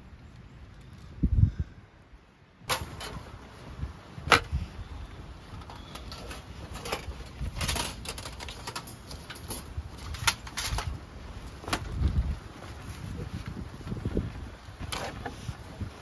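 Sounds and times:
steel panels clinking: 2.7s - 3.6s, 5.6s - 11.0s.

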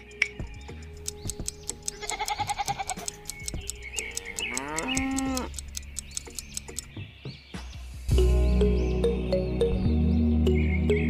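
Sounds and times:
farm animal calls: 1.7s - 6.0s.

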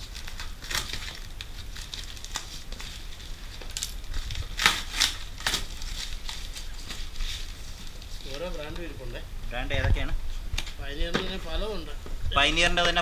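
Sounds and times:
box cutter slitting tape: 4.5s - 7.0s.

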